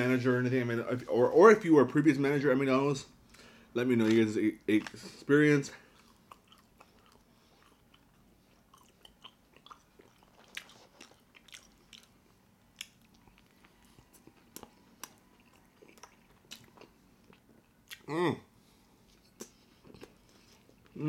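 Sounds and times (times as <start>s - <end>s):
person chewing food: 5.8s - 18.1s, 19.0s - 21.0s.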